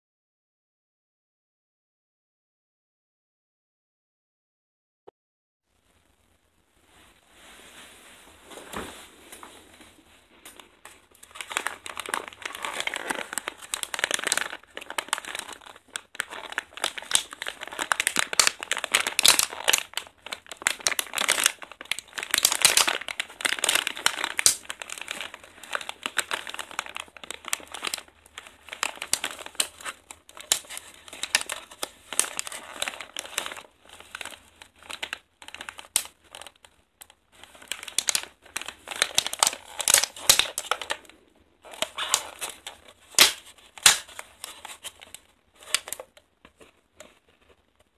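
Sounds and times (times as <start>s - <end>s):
plastic packaging crinkling: 10.0s - 47.9s.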